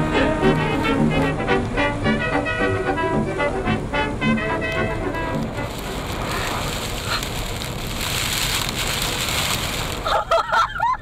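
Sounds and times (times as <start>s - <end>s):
wind and blowing dust: 4.4s - 11.0s.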